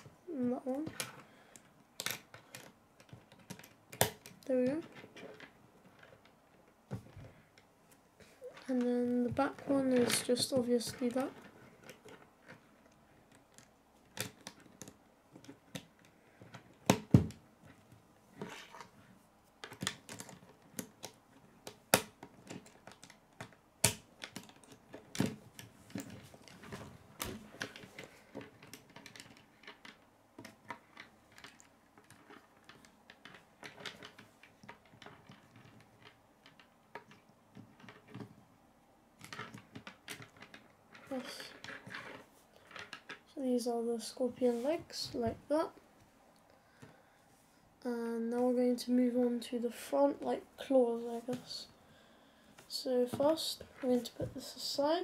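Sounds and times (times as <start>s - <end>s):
plastic pieces clicking together: 0.7s - 6.4s, 8.6s - 17.8s, 19.6s - 38.4s, 39.2s - 43.3s.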